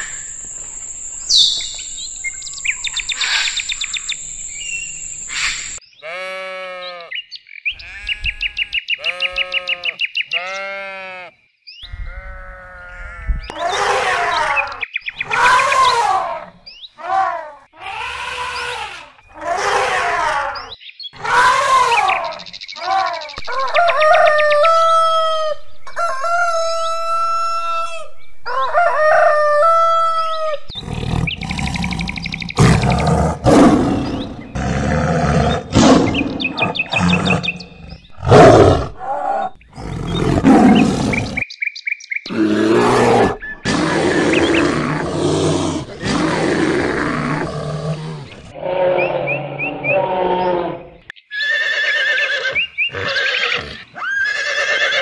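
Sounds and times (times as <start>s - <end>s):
long steady animal calls: 0.0s - 7.1s, 21.2s - 41.5s, 42.3s - 55.0s
high chirp-like animal calls: 0.0s - 11.2s, 11.8s - 17.2s, 17.8s - 34.7s, 35.3s - 41.6s, 47.0s - 55.0s
harsh roars and growls: 30.7s - 37.6s, 38.2s - 41.4s, 42.3s - 50.8s.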